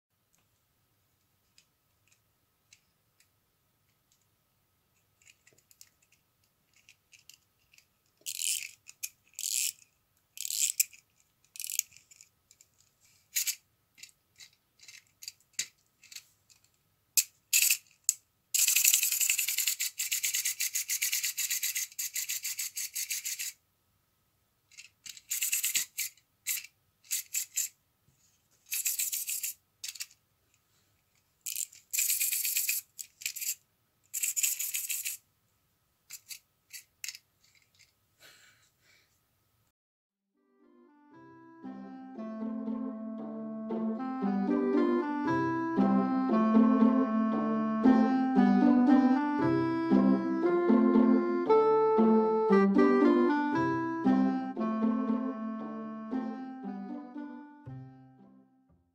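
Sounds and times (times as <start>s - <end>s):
wind-up key ratcheting clicks: 8.2s - 9.8s, 10.4s - 11.0s, 11.6s - 12.0s.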